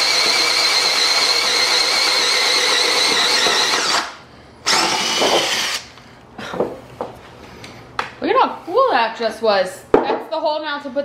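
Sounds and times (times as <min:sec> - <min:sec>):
cordless drill boring through wood: 0:00.0 - 0:05.9.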